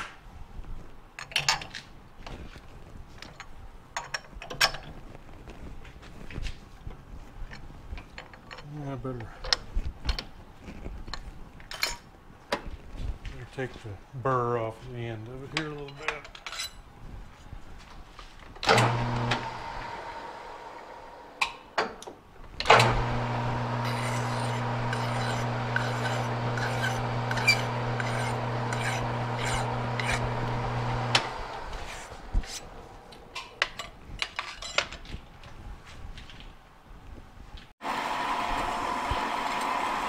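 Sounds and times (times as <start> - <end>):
metal lathe running: 18.7 - 21.4, 22.7 - 32.8
file scraping metal rod: 23.5 - 32.7.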